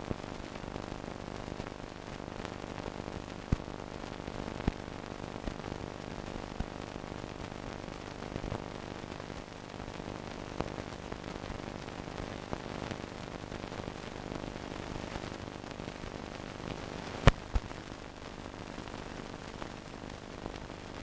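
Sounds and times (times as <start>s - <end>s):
faint crackles: 0.0s - 21.0s
sharp pops: 17.2s - 17.7s.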